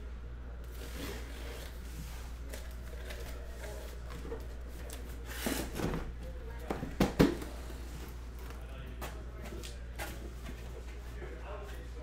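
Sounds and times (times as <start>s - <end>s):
steady low hum: 0.0s - 12.0s
cardboard scraping: 0.7s - 6.0s.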